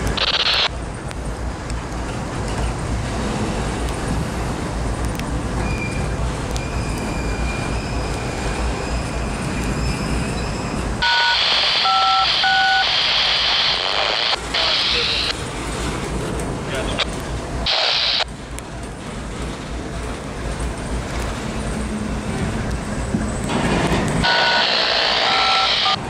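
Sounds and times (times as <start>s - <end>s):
scanner radio hiss: 0.2s - 0.7s, 11.0s - 15.4s, 17.6s - 18.3s, 24.2s - 26.0s
touch-tone beeps: 11.0s - 13.0s.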